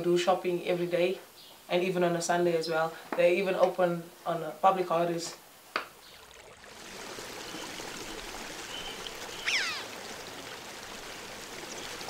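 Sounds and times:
running water rushing: 4.9 - 12.0
falling whistle-like call: 8.8 - 9.9.

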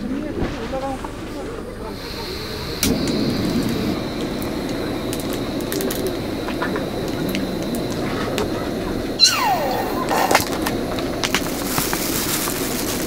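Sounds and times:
gas stove burner roaring: 0.8 - 13.0
igniter click: 2.0 - 11.5.

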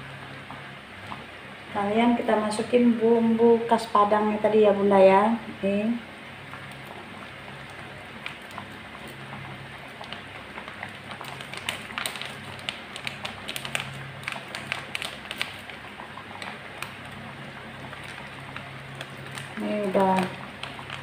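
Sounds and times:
thick sauce bubbling and popping: 6.4 - 21.0.

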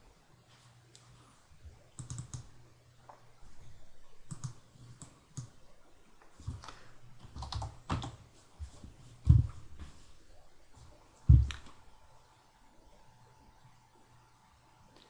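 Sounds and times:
typing on computer keyboard: 2.0 - 2.5, 4.3 - 5.5, 7.3 - 8.2.

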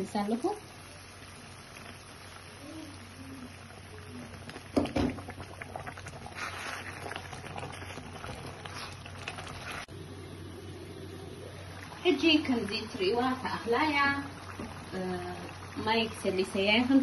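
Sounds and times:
sauce bubbling in a pan: 0.0 - 17.0
wooden spatula stirring: 4.4 - 9.9.

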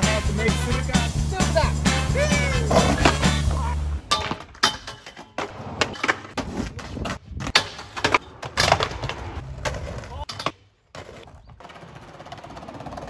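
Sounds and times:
background music: 0.0 - 4.0
skateboard wheels rolling: 1.9 - 13.0
skateboards clacking on asphalt: 1.9 - 13.0.

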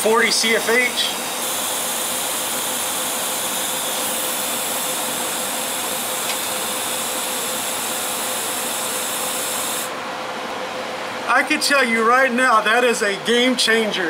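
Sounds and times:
welding arc hissing: 0.0 - 10.0.

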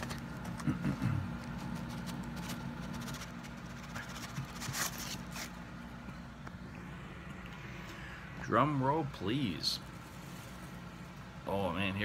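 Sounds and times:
card and cardboard box handling: 0.0 - 5.6
steady low hum: 0.0 - 12.0.

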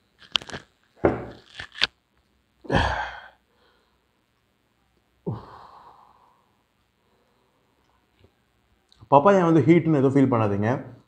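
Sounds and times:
man sighing: 2.7 - 3.4, 5.2 - 6.2
man breathing out hard: 5.3 - 6.5.

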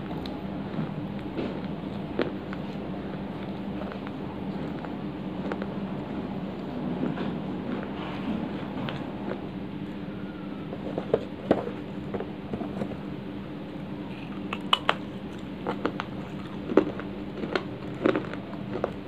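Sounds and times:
dried clay cracking and crumbling: 0.0 - 8.0, 14.1 - 19.0
steady low hum: 0.0 - 19.0.

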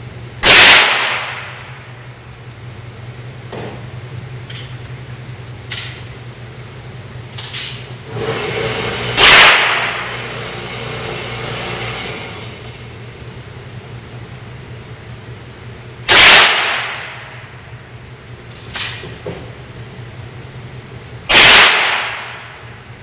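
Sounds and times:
steady low hum: 0.0 - 23.0
rifle shots echoing: 0.4 - 1.7, 9.2 - 10.0, 16.1 - 17.4, 21.3 - 22.6.

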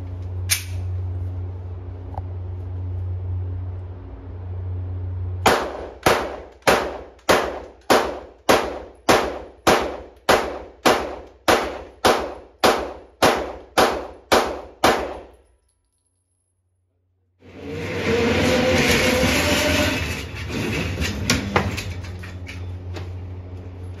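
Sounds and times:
steady low hum: 0.0 - 15.5
sharp bangs: 5.4 - 15.4.

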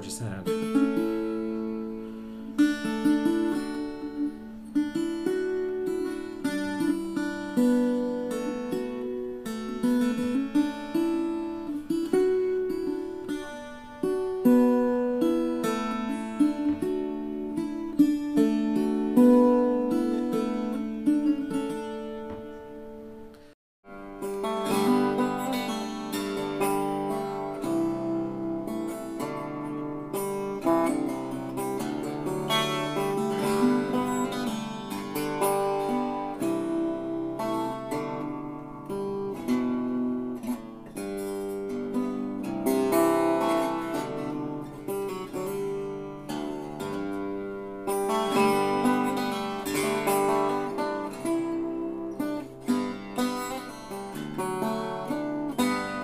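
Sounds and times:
strummed guitar chord: 0.0 - 23.3
plucked string solo: 0.0 - 56.0.

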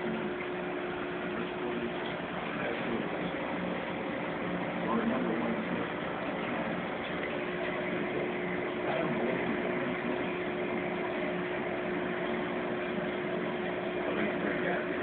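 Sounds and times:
aquarium pumps humming: 0.0 - 15.0.

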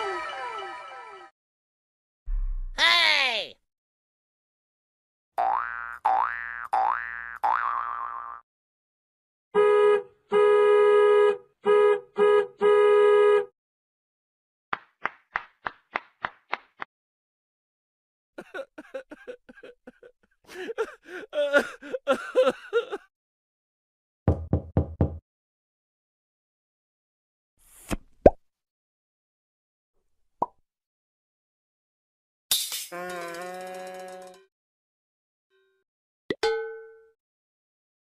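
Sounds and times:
cartoon horn honks: 9.6 - 13.5.

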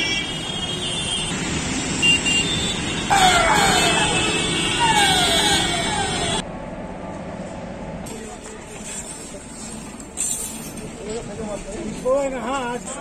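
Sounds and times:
ambulance siren wailing: 3.1 - 6.4.

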